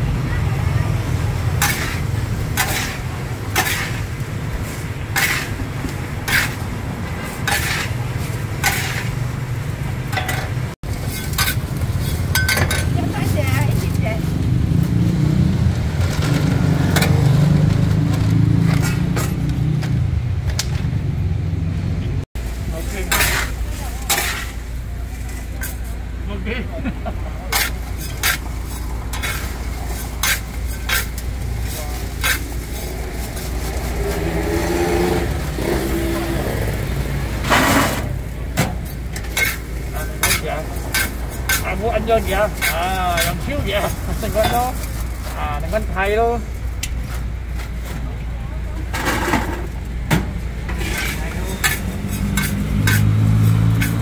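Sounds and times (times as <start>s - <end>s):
street traffic rumble: 0.0s - 54.0s
sharp scrapes and clinks: 1.6s - 5.6s, 6.2s - 6.7s, 7.3s - 9.2s, 10.1s - 12.9s, 18.6s - 19.5s, 23.0s - 26.0s, 27.5s - 35.2s, 38.8s - 45.4s, 50.7s - 54.0s
vehicle engine passing: 12.9s - 22.2s, 27.2s - 44.7s, 50.5s - 54.0s.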